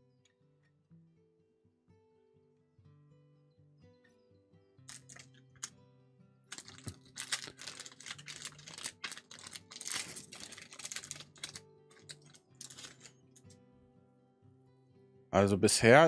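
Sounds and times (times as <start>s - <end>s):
faint background music: 0.0s - 16.0s
cards flipping and rustling: 4.9s - 5.4s, 6.5s - 13.1s.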